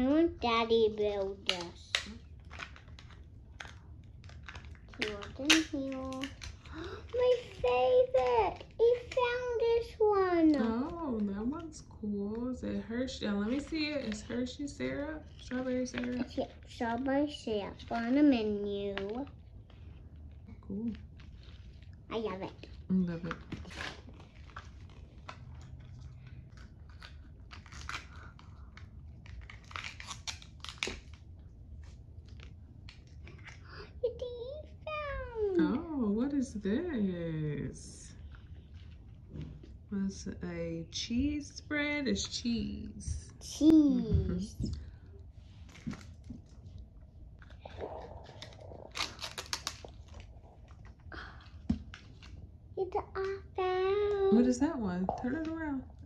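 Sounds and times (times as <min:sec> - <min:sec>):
paper wrapper crinkling: 0:00.7 - 0:34.3, 0:44.7 - 0:54.5.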